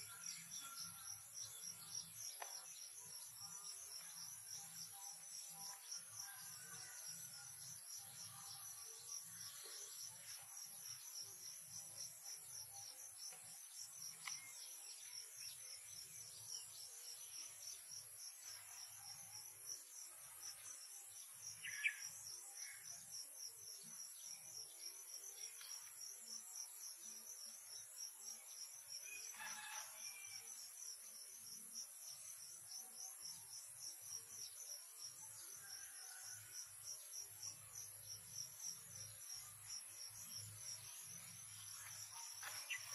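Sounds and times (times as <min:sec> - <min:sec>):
insects trilling: 0:00.0 - 0:42.9.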